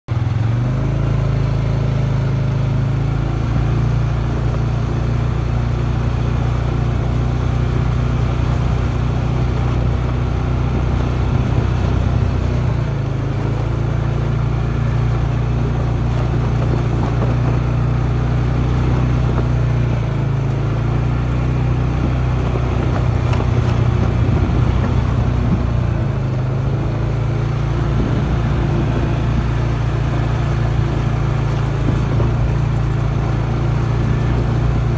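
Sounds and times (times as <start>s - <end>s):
off-road vehicle engine running: 0.1s - 34.9s.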